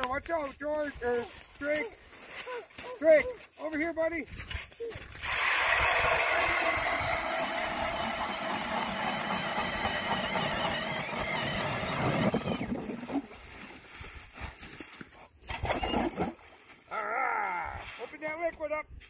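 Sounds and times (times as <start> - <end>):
ice auger motor whining: 5.2 - 13.3.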